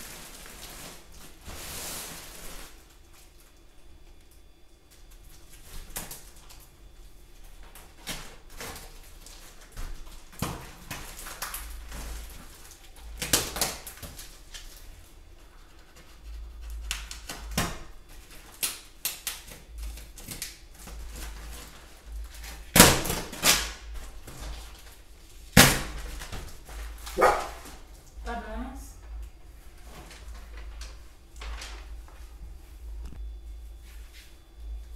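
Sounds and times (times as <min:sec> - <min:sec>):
packing tape ripping: 0:22.4 - 0:24.9, 0:25.6 - 0:27.8.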